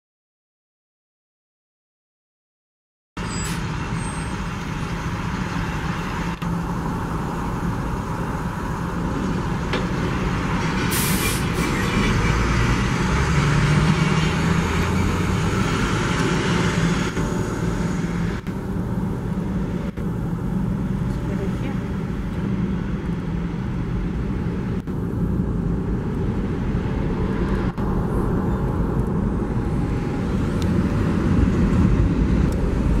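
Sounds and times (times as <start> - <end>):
diesel locomotive engine running: 3.2 - 33.0
air hiss: 10.9 - 11.5.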